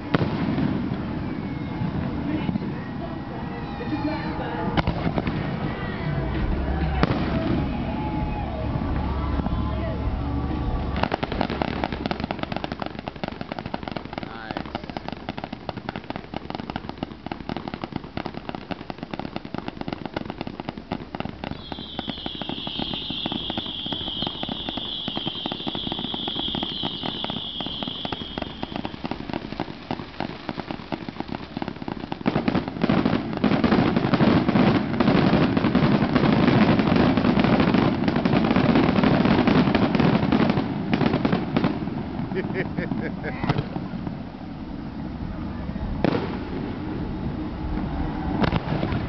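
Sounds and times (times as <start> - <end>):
fireworks crackling and popping: 0.0 - 49.0
high steady whistle: 21.5 - 28.9.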